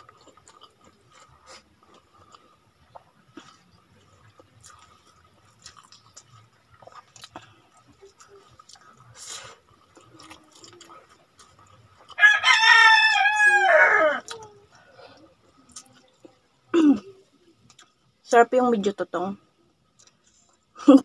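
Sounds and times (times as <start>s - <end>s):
faint eating clicks: 0.0s - 12.2s, 17.6s - 18.2s, 19.8s - 20.8s
rooster crowing: 12.2s - 14.4s.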